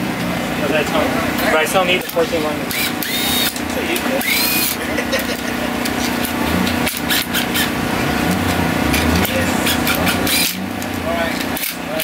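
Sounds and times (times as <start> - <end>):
cordless power tool rasping: 2.6 - 10.6
low hum: 5.2 - 11.4.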